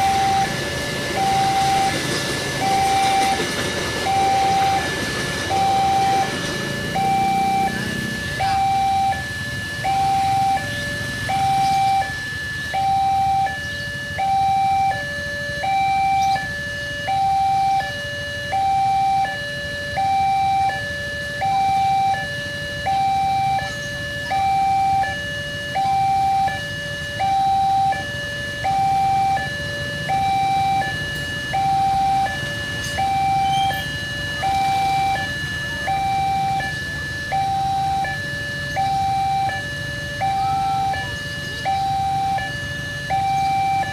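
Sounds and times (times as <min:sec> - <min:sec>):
idling traffic rumble: 0:00.0 - 0:43.9
two-tone crossing alarm: 0:00.0 - 0:43.9.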